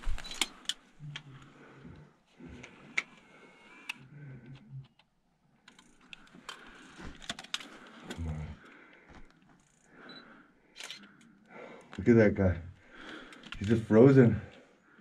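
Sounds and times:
camera handling clicks and knocks: 7.2s - 7.7s.

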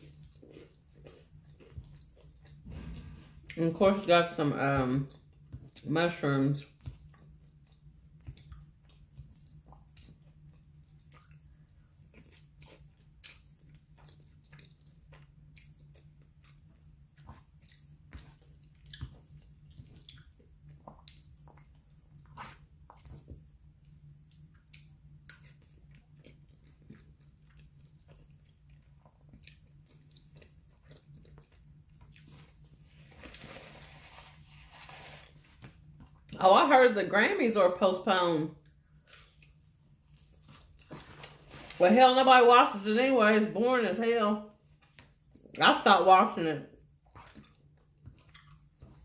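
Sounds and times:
person chewing: 0.0s - 3.6s, 6.6s - 36.4s, 38.6s - 41.8s, 46.7s - 49.0s
steady low hum: 0.0s - 49.0s.

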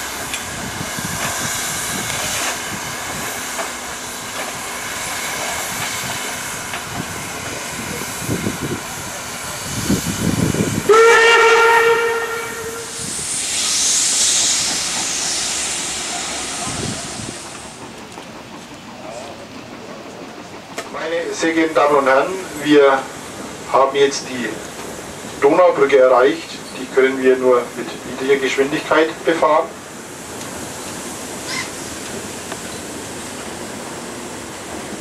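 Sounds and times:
low steam puffs: 0.0s - 35.0s
steam locomotive hissing: 0.0s - 35.0s
steam whistle blast: 10.8s - 15.6s.

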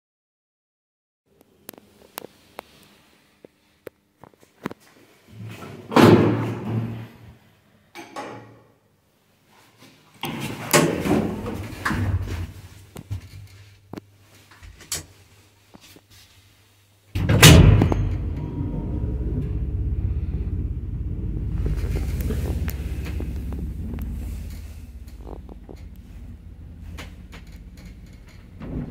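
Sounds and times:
lift door knocking and rattling: 17.2s - 19.7s, 21.5s - 28.9s
lift machinery humming: 17.2s - 28.9s
lift starting clunk: 17.2s - 28.9s.

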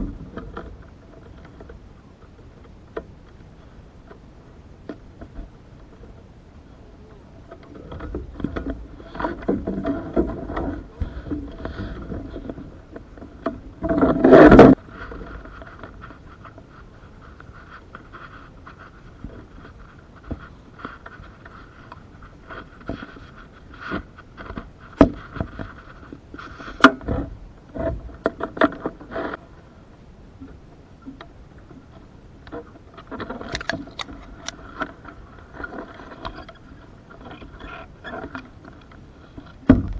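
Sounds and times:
knocks and clicks on wooden canoe: 0.0s - 6.3s, 7.4s - 29.4s, 30.4s - 39.9s
boat scraping rub: 7.5s - 29.7s.

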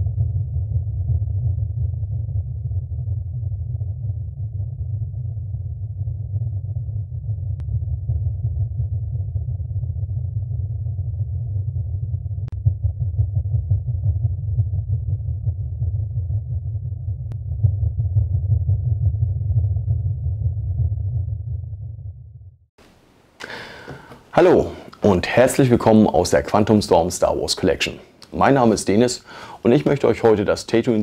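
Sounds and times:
deep rumbling drone: 0.0s - 22.7s.

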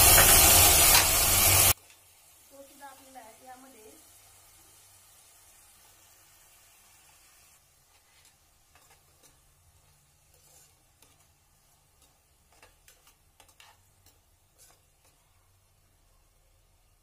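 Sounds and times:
spoon stirring in pot: 7.9s - 15.7s.

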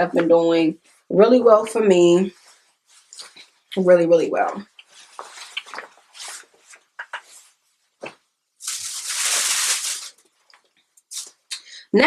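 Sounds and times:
cloth rustling: 2.3s - 3.7s, 4.7s - 11.0s.

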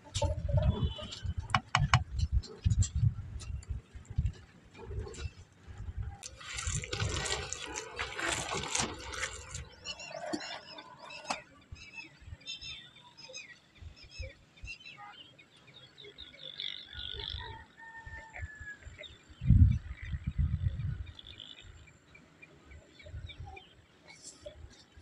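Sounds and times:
birds chirping: 0.0s - 18.0s
hands squishing wet batter: 6.2s - 10.4s.

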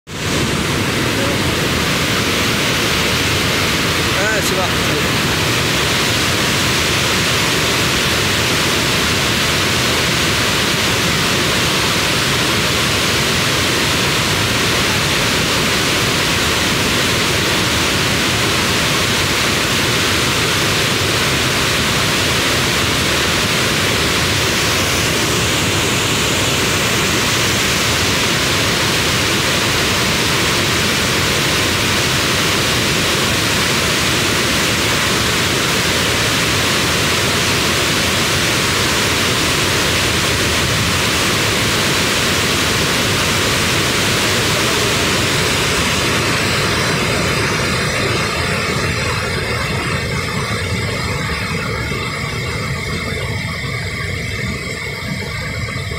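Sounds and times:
water rushing over a weir: 0.1s - 55.9s.

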